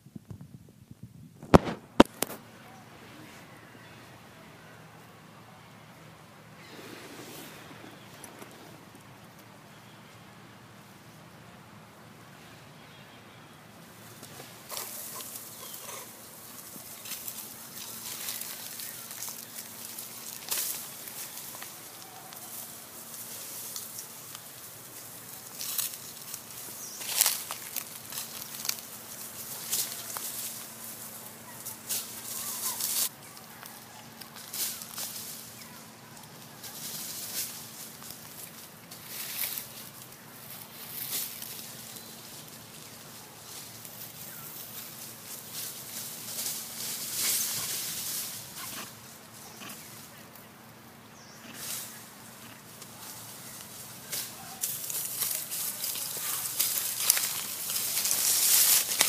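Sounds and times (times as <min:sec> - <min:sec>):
steady hiss: 0:00.0 - 0:12.9, 0:36.6 - 0:59.0
dry leaves rustling and crackling: 0:13.8 - 0:59.0.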